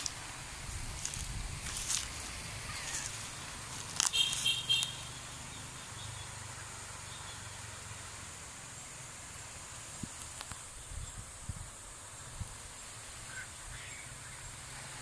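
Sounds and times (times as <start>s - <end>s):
wind: 0.0s - 15.0s.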